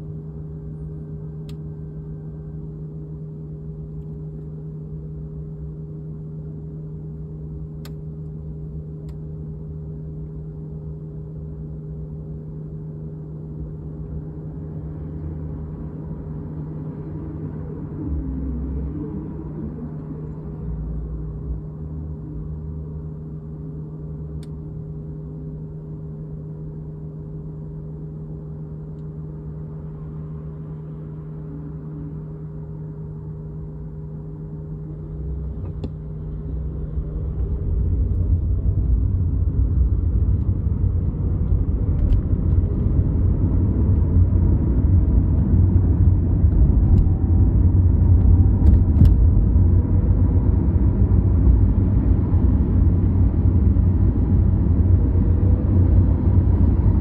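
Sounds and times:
engine and road rumble: 0.0s - 57.0s
steady hum with held tones: 0.0s - 57.0s.

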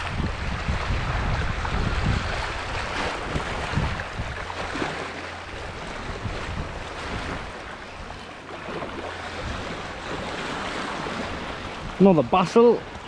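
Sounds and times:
waves on rocky shore: 0.0s - 13.0s
wind buffeting microphone: 0.0s - 13.0s.

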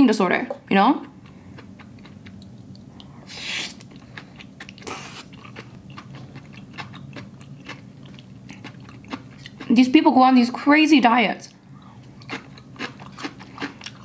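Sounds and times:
steady low hum: 0.0s - 14.0s
wet chewing: 1.0s - 9.8s, 11.8s - 14.0s
noodle slurps: 3.3s - 3.9s.

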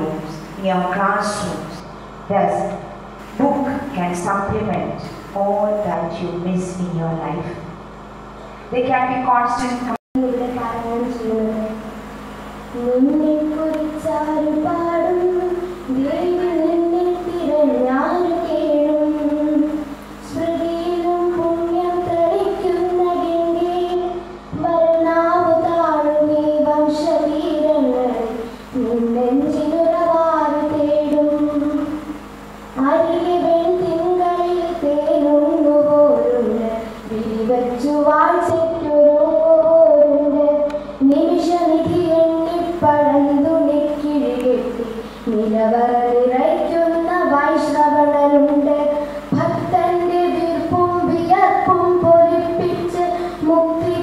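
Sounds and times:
girl singing into a microphone: 10.2s - 11.9s, 12.7s - 32.2s, 32.8s - 54.0s.

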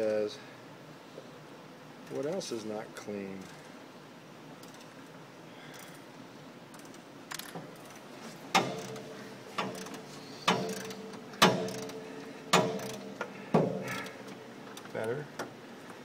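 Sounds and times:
sharp metallic clicks with ring: 9.6s - 12.0s, 12.6s - 13.3s.

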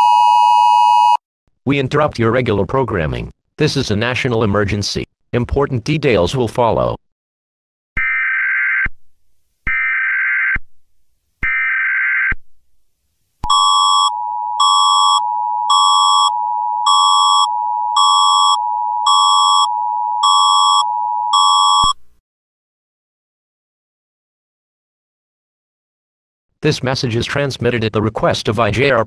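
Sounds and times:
steady attention tone: 13.4s - 22.0s
pulsing high beep: 13.5s - 22.0s.

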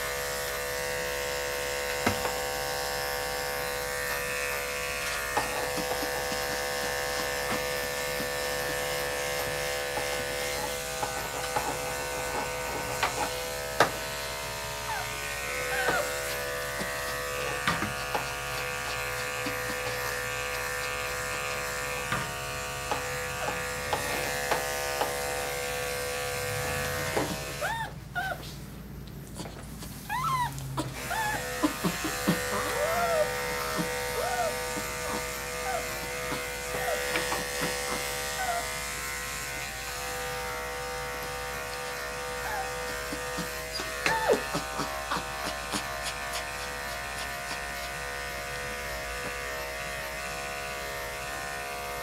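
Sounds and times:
electric dog clipper humming: 0.0s - 28.0s, 29.9s - 52.0s
dog whining: 9.6s - 11.6s, 14.7s - 22.0s, 27.5s - 28.6s, 29.3s - 39.1s, 41.2s - 48.4s.

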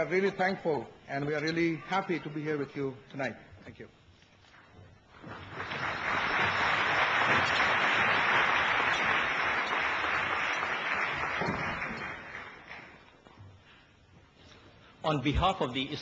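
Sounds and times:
audience applauding: 5.1s - 13.1s.

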